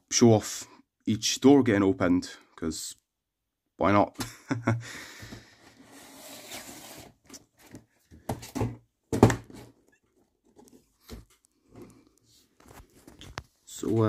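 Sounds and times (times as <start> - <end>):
box knocking against table: 8.2 - 9.6.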